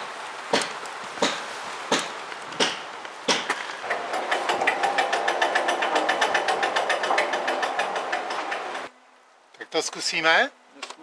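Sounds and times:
chain clicking over sprockets: 3.8s - 8.9s.

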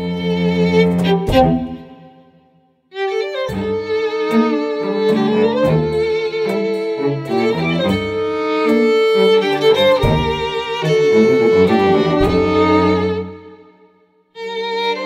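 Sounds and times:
string quartet playing tango: 0.0s - 2.2s, 3.0s - 13.7s, 14.4s - 15.0s
low percussive hits: 0.9s - 2.1s, 9.5s - 13.4s.

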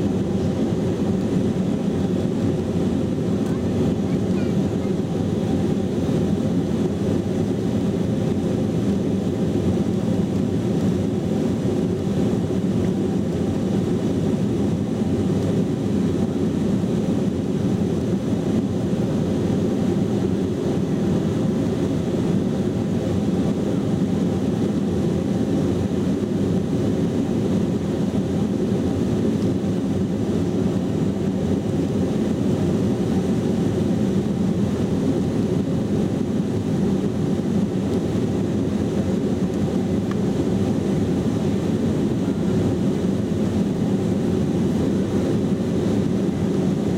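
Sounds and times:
jet engines rumbling in cabin: 0.0s - 46.9s.

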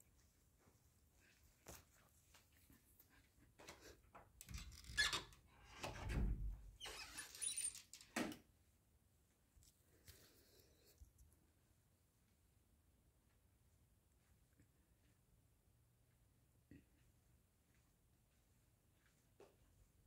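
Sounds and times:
door hinge squeak: 4.5s - 6.2s, 6.8s - 7.9s.

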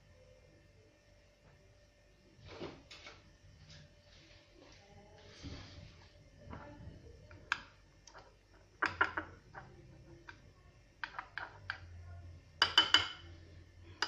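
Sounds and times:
teaspoon clinking on ceramic dish: 12.6s - 13.3s.

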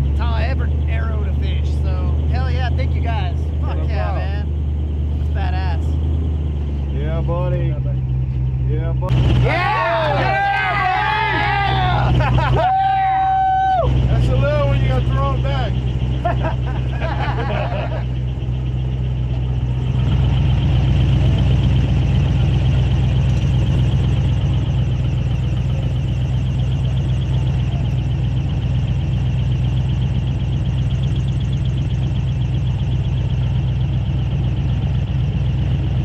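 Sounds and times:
airboat engine and propeller: 14.0s - 36.0s.

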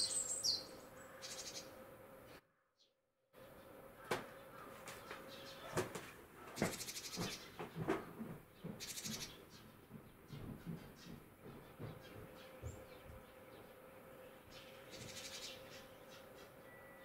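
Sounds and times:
sparrows chirping: 0.0s - 2.4s, 3.4s - 17.0s.

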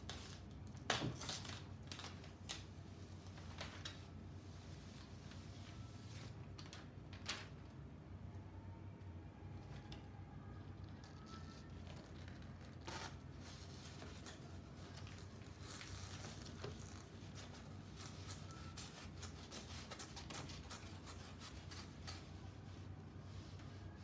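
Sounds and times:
paper rustling and scraping: 11.0s - 24.0s.

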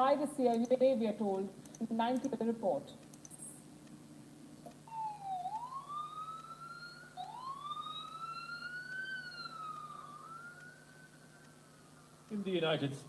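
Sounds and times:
ambulance siren wailing: 4.9s - 13.0s.

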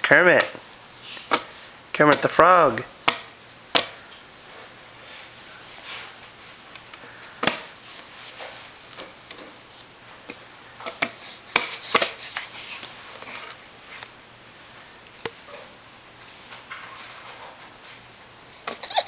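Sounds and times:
hands slapping skateboard deck: 10.9s - 12.2s.

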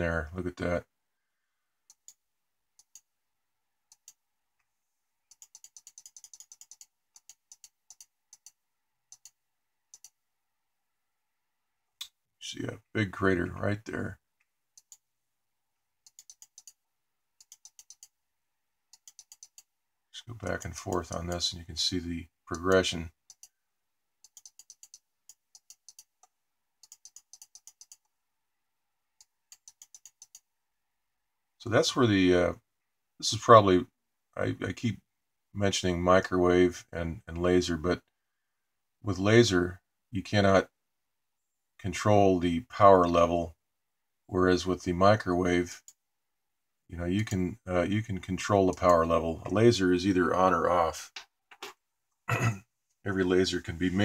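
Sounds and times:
computer mouse clicking: 1.9s - 2.2s, 2.8s - 3.1s, 3.9s - 4.2s, 5.3s - 10.2s, 16.0s - 16.8s, 17.4s - 18.2s, 18.9s - 19.7s, 20.4s - 21.4s, 22.6s - 23.6s, 24.2s - 28.1s, 29.2s - 30.5s.

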